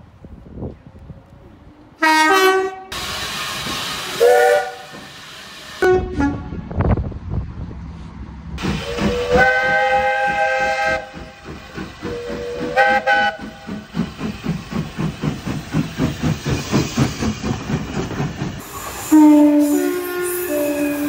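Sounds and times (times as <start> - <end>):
steam locomotive whistle: 2.0 - 3.1, 4.0 - 5.1, 5.8 - 6.5, 8.7 - 11.3, 12.0 - 13.8, 18.6 - 21.0
steam exhaust chuffing: 8.6 - 21.0.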